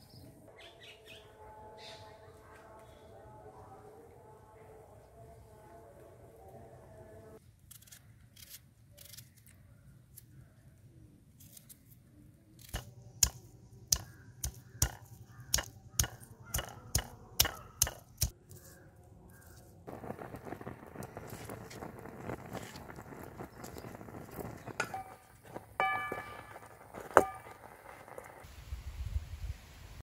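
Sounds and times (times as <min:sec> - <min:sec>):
knife slicing onion: 0:12.6 - 0:18.3
stone pounding garlic: 0:12.8 - 0:18.3
leaves sizzling in hot oil: 0:19.9 - 0:28.8.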